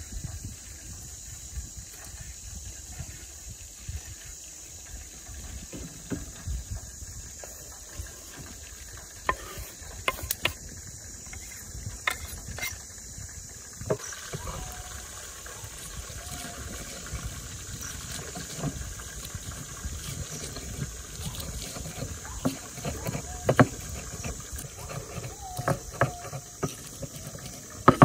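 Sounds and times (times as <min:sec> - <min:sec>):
pestle crushing in stone mortar: 0:07.3 - 0:12.9, 0:13.8 - 0:28.0.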